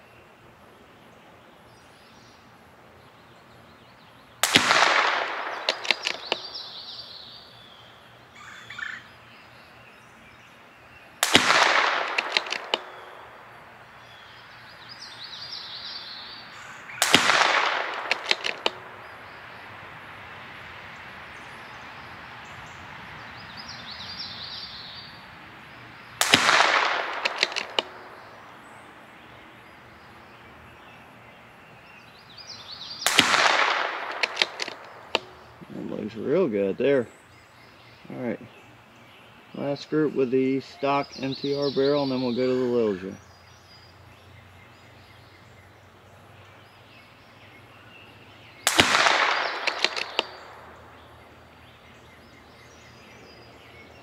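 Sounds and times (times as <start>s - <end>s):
rifle shots with echo: 4.4s - 7.0s, 11.2s - 13.8s, 16.9s - 19.4s, 26.2s - 28.7s, 33.0s - 35.7s, 48.6s - 51.3s.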